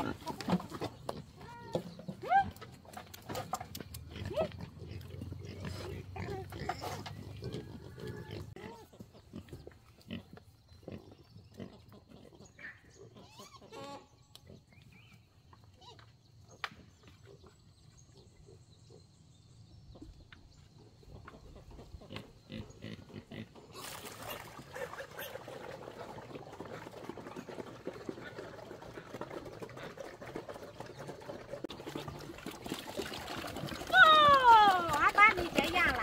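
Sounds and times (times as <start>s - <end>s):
pigs grunting: 3.3s - 14.7s, 21.6s - 33.9s.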